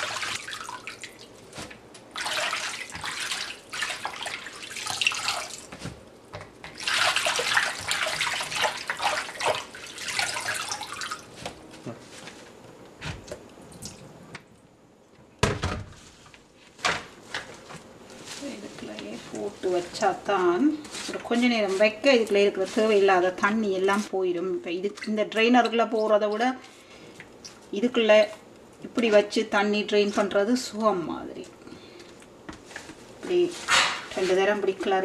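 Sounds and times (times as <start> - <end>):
water sloshing in plastic bowl: 0.0 - 6.0, 6.6 - 11.6.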